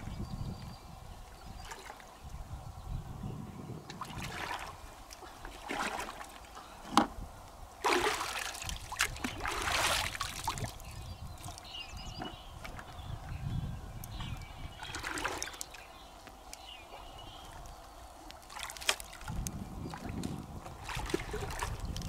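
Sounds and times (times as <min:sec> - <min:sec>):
river water splashing: 0:03.9 - 0:06.8, 0:07.8 - 0:13.0, 0:14.7 - 0:22.0.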